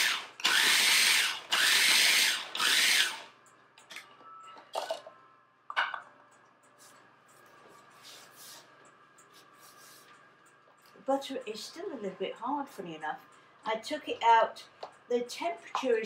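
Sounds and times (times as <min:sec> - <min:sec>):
food processor whirring: 0:00.0 - 0:03.4.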